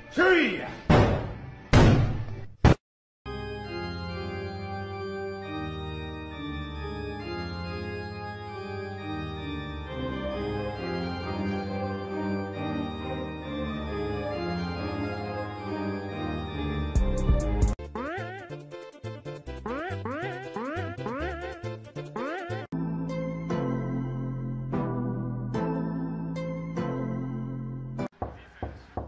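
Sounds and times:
organ playing slow chords: 0:03.3 - 0:17.0, 0:22.8 - 0:28.0.

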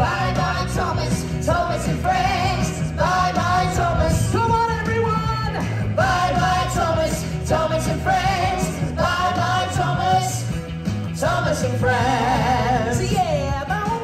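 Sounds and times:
person singing: 0:11.2 - 0:14.0.

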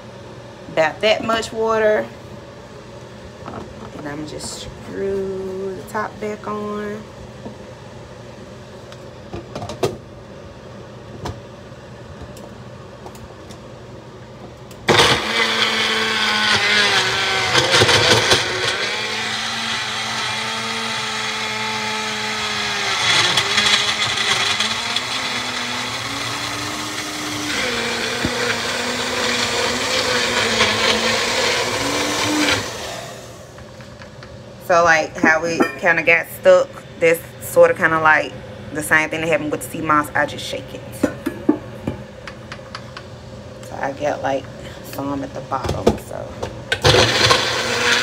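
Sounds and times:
blender motor running: 0:14.8 - 0:33.6, 0:46.7 - 0:48.0.

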